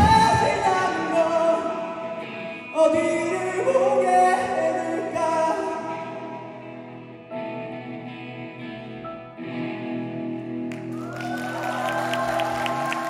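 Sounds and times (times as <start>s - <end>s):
electric guitars sustained chords: 0.0s - 13.0s.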